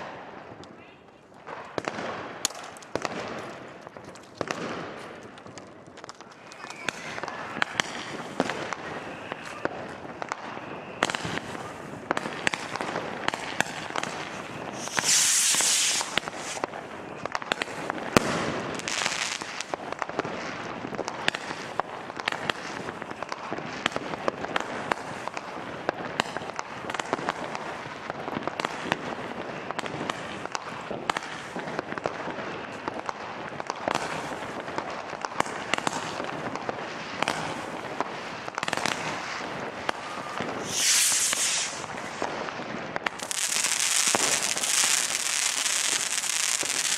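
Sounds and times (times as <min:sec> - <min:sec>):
fireworks crackling and banging: 0:00.0 - 0:46.9
firework hissing burst: 0:14.3 - 0:16.7, 0:40.1 - 0:42.2, 0:43.2 - 0:46.9.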